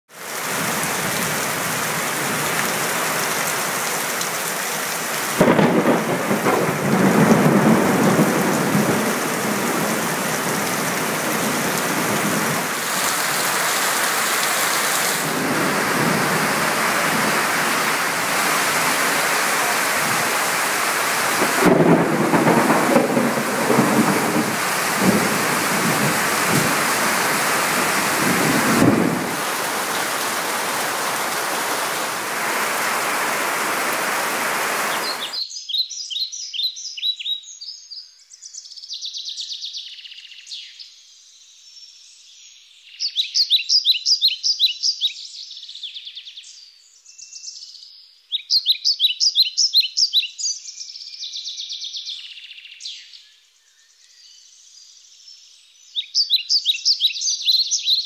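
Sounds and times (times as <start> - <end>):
steady rain: 0.1 - 35.4
birds chirping: 13.8 - 58.0.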